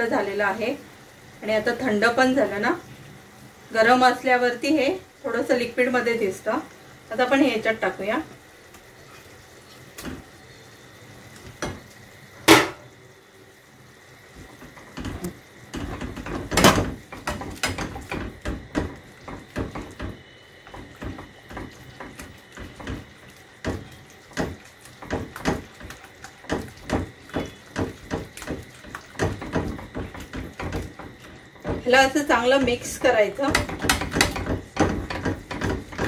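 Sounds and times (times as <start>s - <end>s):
spatula stirring sauce in pan: 14.3s - 36.0s.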